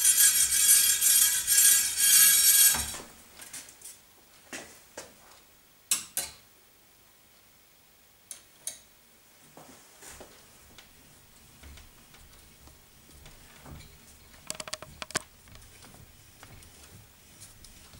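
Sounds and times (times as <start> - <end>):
soft small knocks: 13.6 - 16.6
sharp metal clicks and taps: 14.4 - 15.3.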